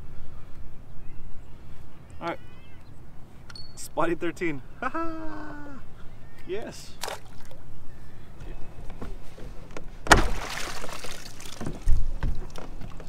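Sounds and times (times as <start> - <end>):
low thump: 10.0 - 10.5
water splashing around kayak: 10.0 - 13.0.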